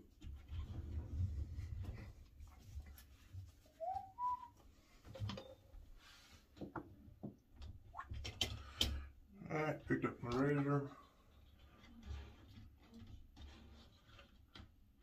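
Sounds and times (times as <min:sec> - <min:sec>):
two-note whistle: 0:03.8 - 0:04.6.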